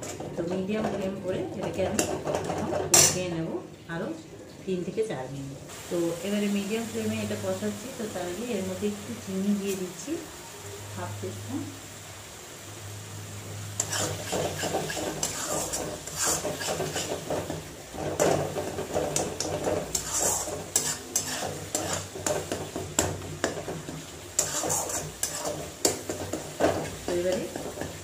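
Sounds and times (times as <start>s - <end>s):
metal spatula scraping a metal pan: 0.0s - 3.2s, 13.8s - 28.0s.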